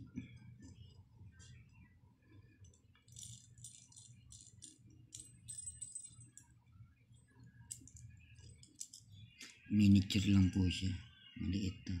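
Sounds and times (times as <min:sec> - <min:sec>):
faint metal clicks and rattling: 0:02.4 - 0:06.6, 0:07.4 - 0:09.6.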